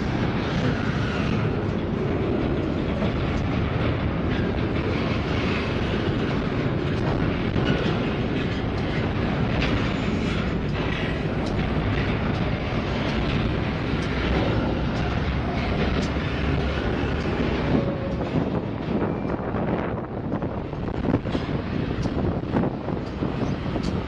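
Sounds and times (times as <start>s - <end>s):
diesel locomotive engine rumble: 0.0s - 24.0s.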